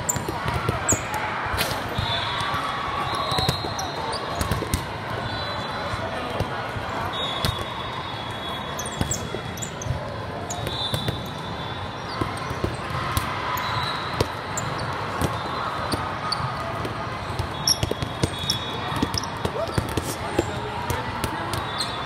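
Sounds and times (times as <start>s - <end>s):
volleyballs thudding: 0.0s - 1.2s, 1.8s - 5.1s, 12.2s - 21.9s.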